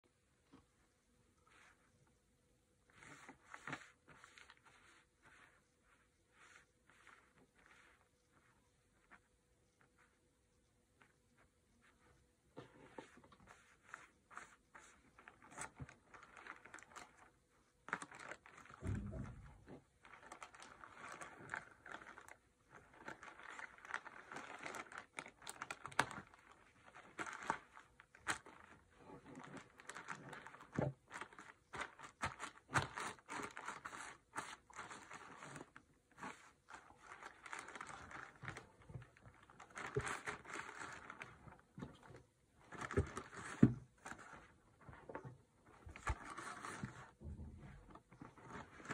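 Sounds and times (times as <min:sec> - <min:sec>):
plastic bags crinkling: 0:15.2 - 0:18.9, 0:19.5 - 0:44.5.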